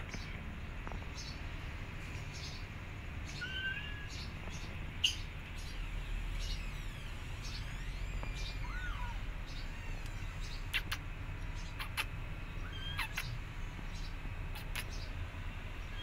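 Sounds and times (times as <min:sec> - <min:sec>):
kitten meowing: 0:03.4 - 0:04.2, 0:07.6 - 0:11.0, 0:12.7 - 0:13.3.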